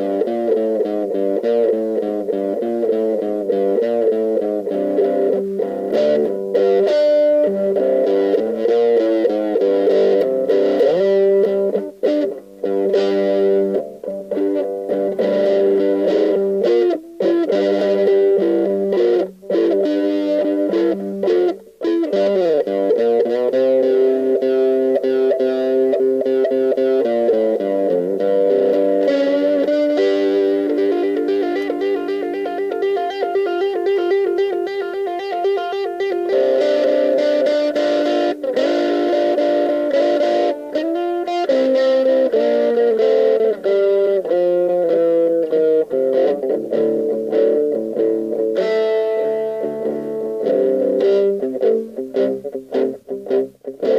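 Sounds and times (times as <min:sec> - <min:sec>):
overdriven electric guitar riffs: 0:00.0 - 0:53.9.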